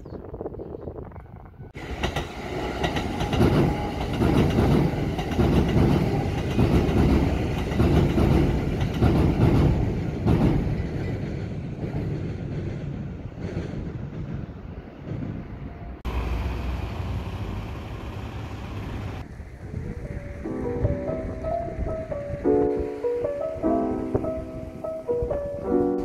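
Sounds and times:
train wheels clattering over rail joints: 0:01.8 - 0:15.6.

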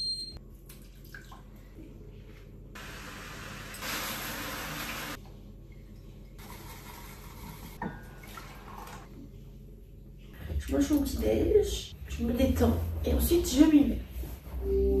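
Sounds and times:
kitchen tap running: 0:03.1 - 0:05.2.

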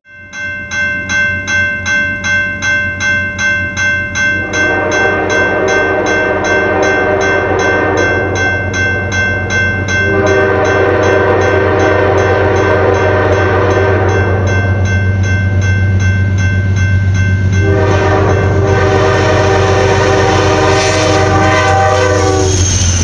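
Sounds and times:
crossing bell ringing: 0:00.0 - 0:23.0
train air horn blasts: 0:04.4 - 0:08.6, 0:10.0 - 0:14.6, 0:17.6 - 0:23.0.

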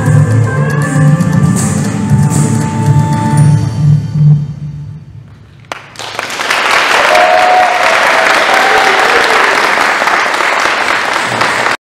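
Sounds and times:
audience applauding: 0:05.6 - 0:11.8
short cheers: 0:06.9 - 0:09.8.

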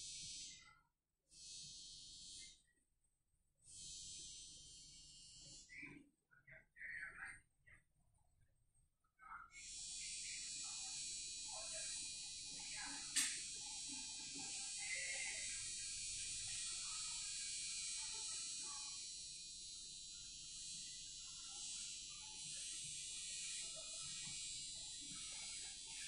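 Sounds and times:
high-pitched room tone hiss: 0:09.6 - 0:26.0.

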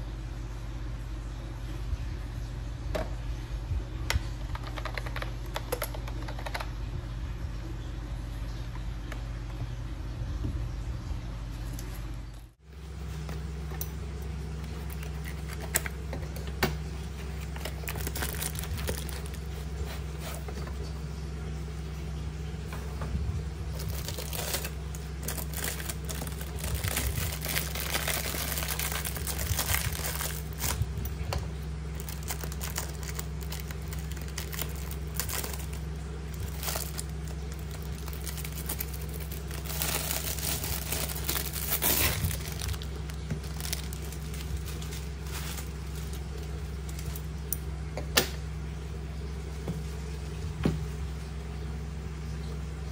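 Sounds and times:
steady low hum: 0:00.0 - 0:52.9
plastic wrap crinkling: 0:14.4 - 0:20.5, 0:23.6 - 0:47.6
scissors cutting plastic: 0:23.7 - 0:30.8, 0:32.0 - 0:46.2.

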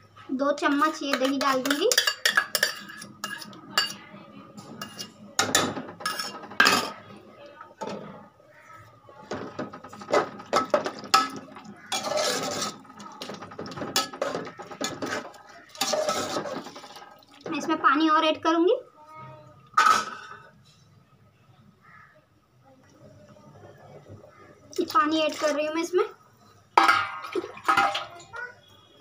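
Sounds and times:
metal spoon clinking against pot: 0:00.6 - 0:04.1, 0:04.8 - 0:07.0, 0:09.3 - 0:17.0, 0:26.8 - 0:28.1.

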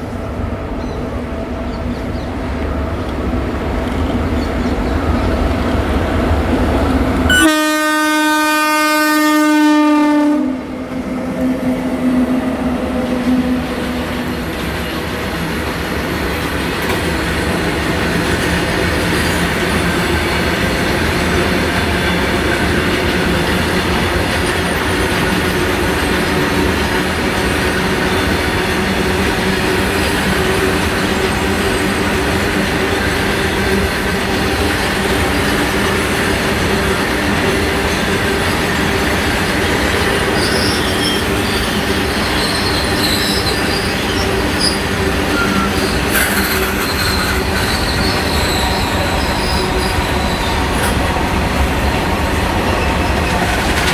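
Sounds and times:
locomotive air horn: 0:07.3 - 0:10.7.

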